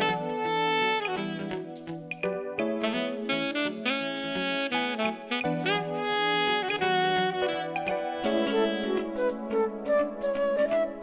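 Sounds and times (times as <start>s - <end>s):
flute melody over held low note: 2.9s - 11.0s.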